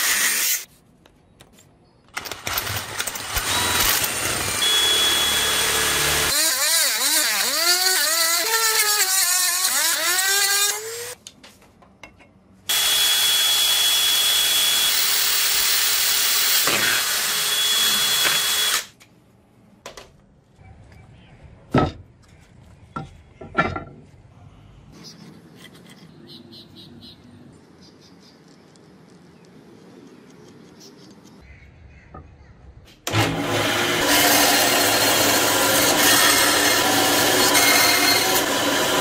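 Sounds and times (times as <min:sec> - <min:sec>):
power drill boring into brass: 0:02.5 - 0:11.2, 0:12.7 - 0:18.9, 0:33.1 - 0:39.0
motor whine: 0:03.5 - 0:06.3.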